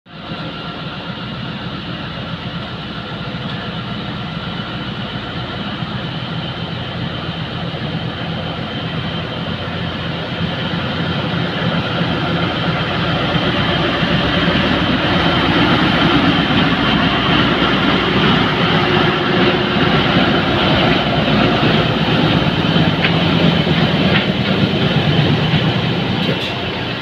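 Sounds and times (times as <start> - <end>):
diesel locomotive engine running: 0.1 - 27.0.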